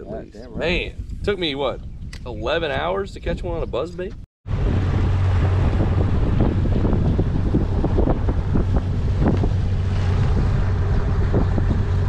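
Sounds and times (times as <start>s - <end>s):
wind buffeting microphone: 0.0s - 12.0s
hull slapping waves: 4.5s - 12.0s
outboard motor hum: 4.5s - 12.0s.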